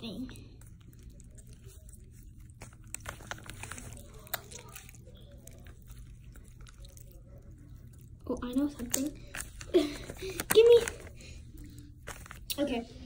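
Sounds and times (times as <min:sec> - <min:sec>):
slime squishing: 0:00.0 - 0:13.0
small sticky pops: 0:02.5 - 0:07.0, 0:08.8 - 0:11.1.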